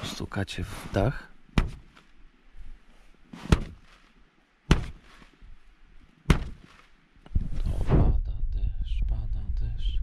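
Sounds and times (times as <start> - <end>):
fabric rustle: 0.7 - 7.9
taps on tent fabric: 1.5 - 2.1, 3.4 - 4.0, 4.7 - 5.3, 6.3 - 6.8.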